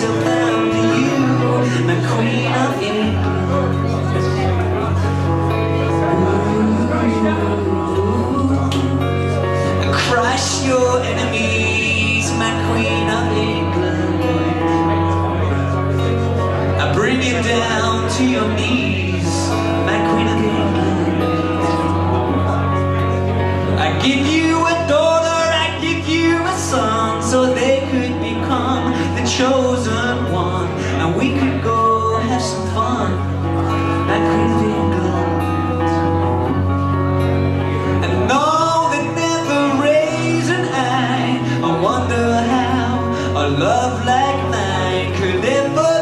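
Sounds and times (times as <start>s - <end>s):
acoustic guitar strumming: 0.0s - 46.0s
man singing: 0.0s - 46.0s.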